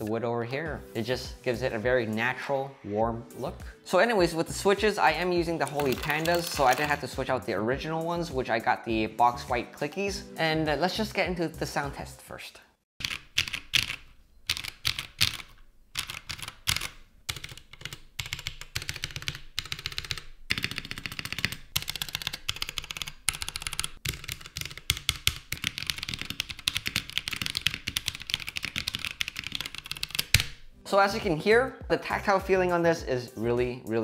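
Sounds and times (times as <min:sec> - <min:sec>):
mechanical keyboard typing: 0:05.6 - 0:07.1, 0:13.0 - 0:30.5.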